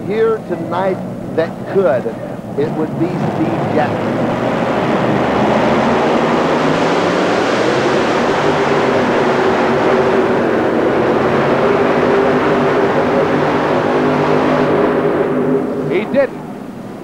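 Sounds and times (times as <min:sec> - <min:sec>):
commentators talking: 0:00.0 - 0:04.2, 0:15.8 - 0:16.4
pulling tractor engine at full throttle: 0:00.0 - 0:17.0.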